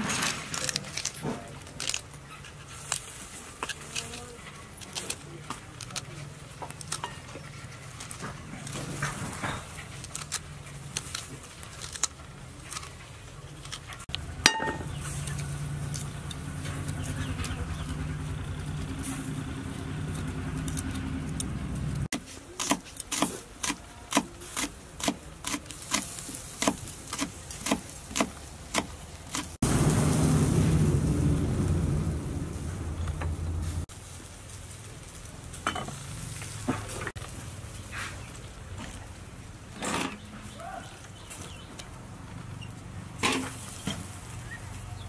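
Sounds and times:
steady low drone: 0:29.6 - 0:33.9.

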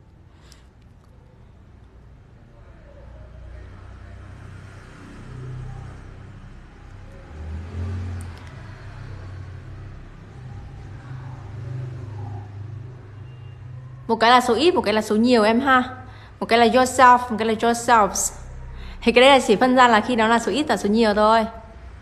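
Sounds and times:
passing motor vehicle engine rumble: 0:01.5 - 0:14.9, 0:15.5 - 0:22.0.

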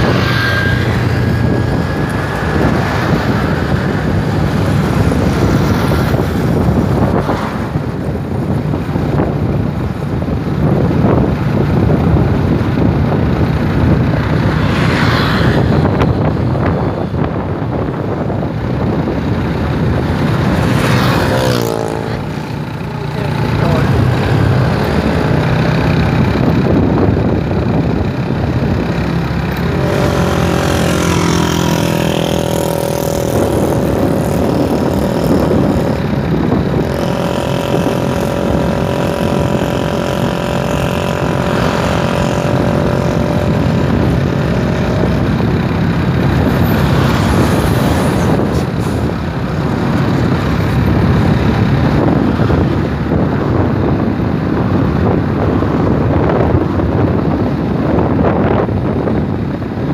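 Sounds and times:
motorcycle engine running: 0:00.0 - 0:59.9
wind rushing over microphone: 0:00.0 - 0:59.9.

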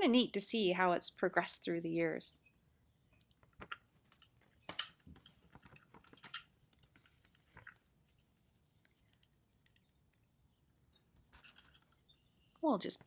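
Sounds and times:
paper flyer rustling and folding: 0:03.4 - 0:10.2, 0:11.0 - 0:12.1.

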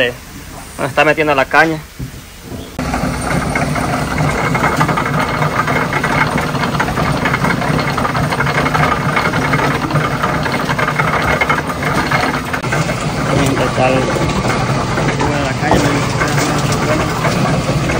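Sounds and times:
sugarcane mill droning and rattling: 0:00.0 - 0:17.9.

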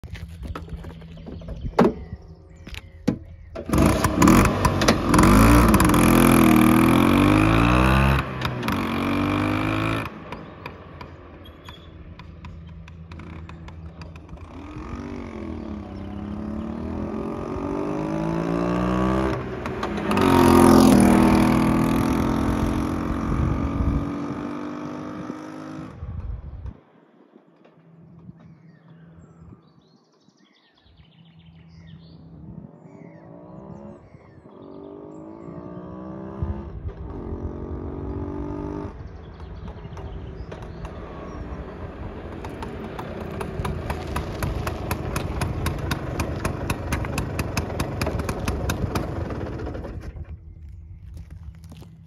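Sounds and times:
scooter engine changing gear: 0:00.1 - 0:24.3, 0:35.8 - 0:52.0.

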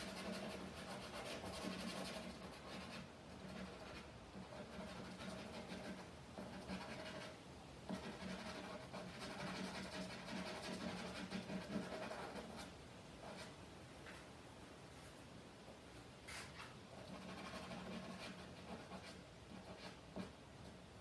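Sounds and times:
charcoal scratching on canvas: 0:00.0 - 0:13.5, 0:16.3 - 0:20.4.

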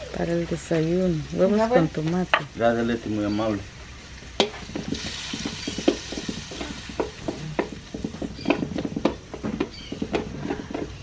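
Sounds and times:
food sizzling: 0:00.0 - 0:11.0
wooden spoon scraping metal pan: 0:04.4 - 0:11.0.

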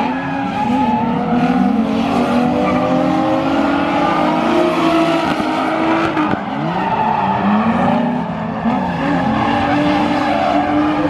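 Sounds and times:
car engine revving: 0:00.0 - 0:11.0.

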